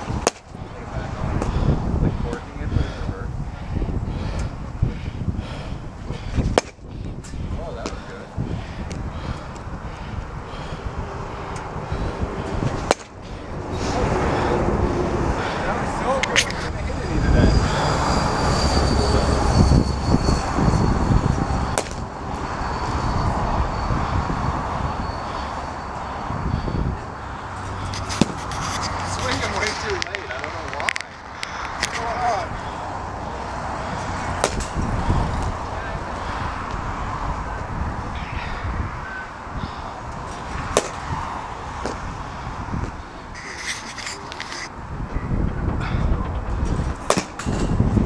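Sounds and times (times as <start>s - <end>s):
bat hitting baseball: 0.2s - 0.4s, 6.5s - 6.8s, 12.8s - 13.1s, 21.8s - 22.0s, 28.2s - 28.4s, 34.4s - 34.8s, 40.7s - 41.0s, 47.0s - 47.6s
heavy truck rumbling past: 7.4s - 43.4s.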